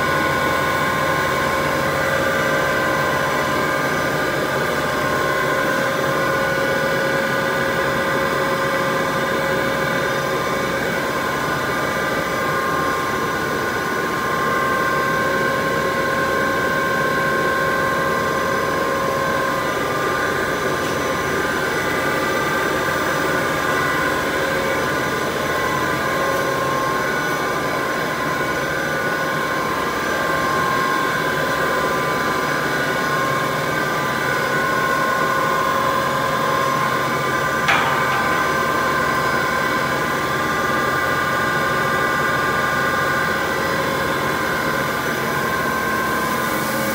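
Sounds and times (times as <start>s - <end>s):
machinery din with whine: 35.3s - 43.8s.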